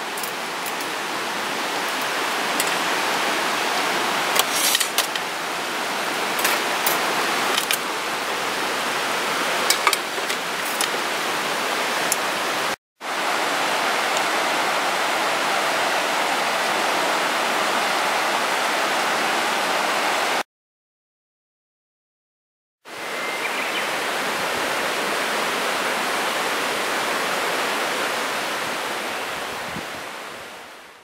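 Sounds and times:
river rushing: 0:00.0 - 0:20.4, 0:22.9 - 0:31.0.

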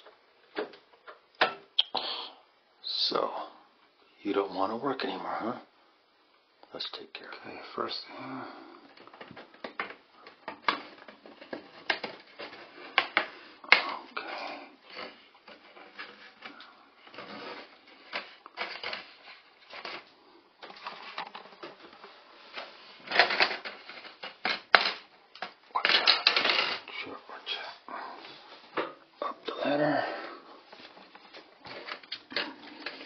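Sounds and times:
plastic clatter: 0:08.9 - 0:26.9, 0:30.8 - 0:33.0.

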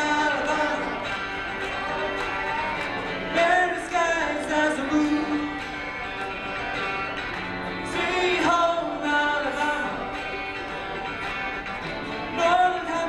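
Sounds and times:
man singing into microphone: 0:00.0 - 0:01.2, 0:03.3 - 0:05.6, 0:07.8 - 0:10.3, 0:12.3 - 0:13.0
electric guitar: 0:00.0 - 0:13.0.

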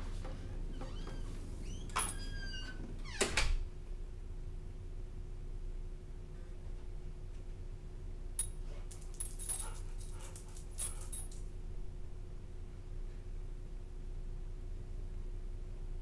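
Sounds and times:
low room hum: 0:00.0 - 0:16.0
dog collar tags jingling: 0:08.4 - 0:11.5.

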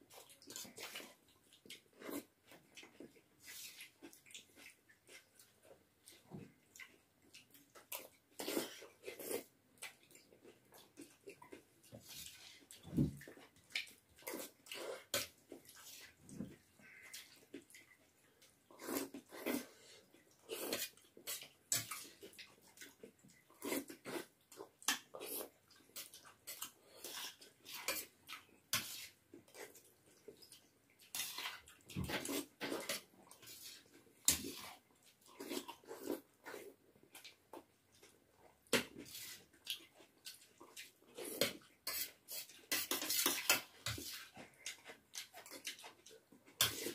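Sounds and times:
slurping noodles: 0:18.7 - 0:22.2.

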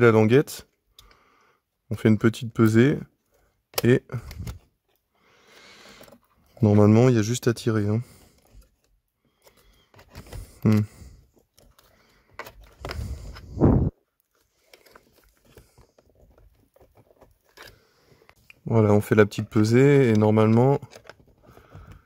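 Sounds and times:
plastic latch clicks: 0:03.7 - 0:04.6
screwdriver scraping plastic: 0:14.7 - 0:18.4.

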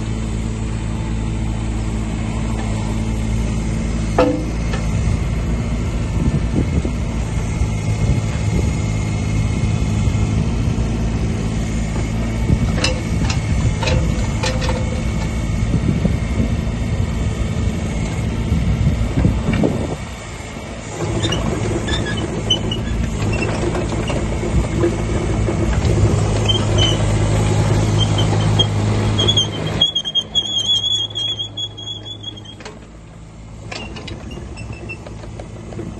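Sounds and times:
excavator diesel engine: 0:00.0 - 0:35.9
high-pitched squeal: 0:27.8 - 0:32.6.

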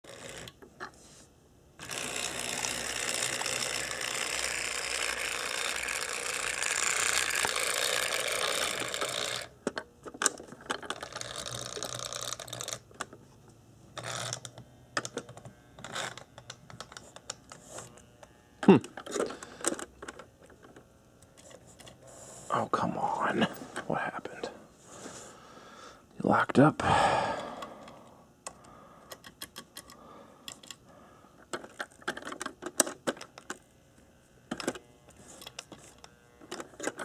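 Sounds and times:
toy locomotive motor whirring: 0:00.0 - 0:01.1, 0:01.8 - 0:13.2, 0:14.0 - 0:22.6, 0:27.0 - 0:37.0.

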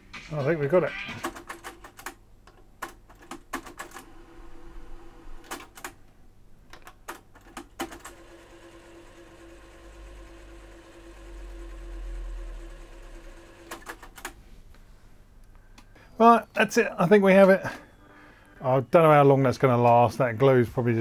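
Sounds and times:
cassette deck running hum: 0:03.9 - 0:06.8, 0:08.1 - 0:14.4.

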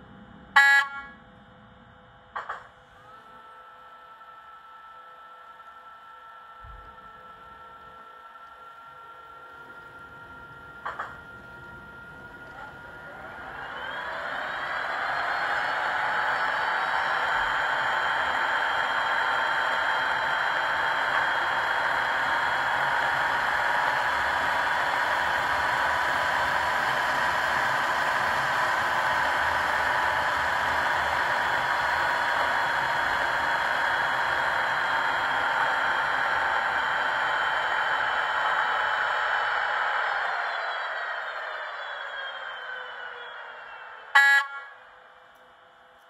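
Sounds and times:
electric locomotive whine: 0:00.0 - 0:46.0.

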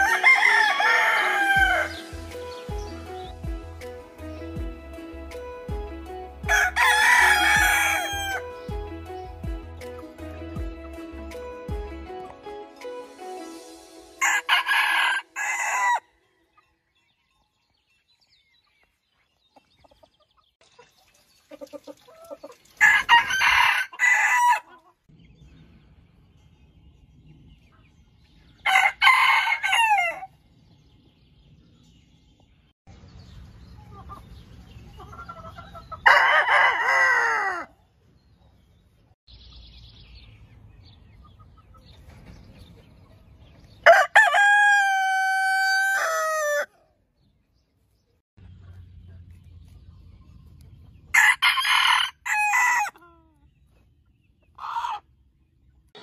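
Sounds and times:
roosters crowing: 0:00.0 - 0:02.9, 0:06.4 - 0:08.6, 0:14.2 - 0:16.2, 0:22.8 - 0:25.0, 0:28.6 - 0:30.4, 0:35.1 - 0:37.8, 0:43.8 - 0:46.9, 0:51.1 - 0:53.2, 0:54.5 - 0:55.1.

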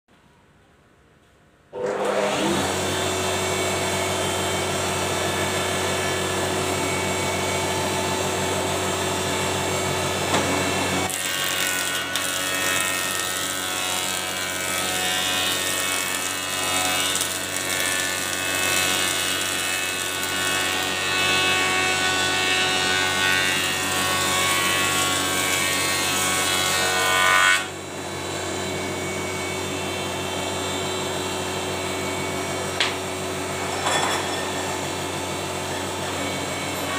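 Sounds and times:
planer cutting board: 0:01.8 - 0:27.7
thickness planer running: 0:01.8 - 0:36.9.

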